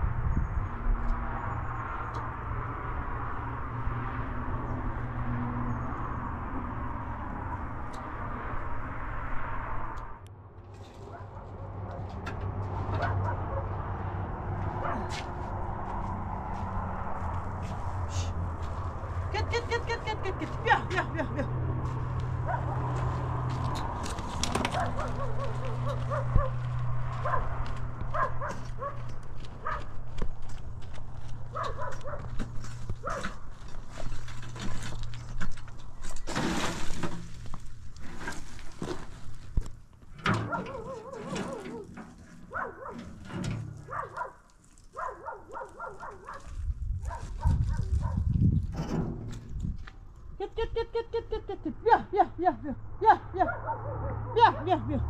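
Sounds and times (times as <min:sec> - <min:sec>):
footsteps on stony ground: 0:14.6 - 0:19.8, 0:21.8 - 0:40.2, 0:40.8 - 0:50.4
dog whining: 0:40.5 - 0:41.9.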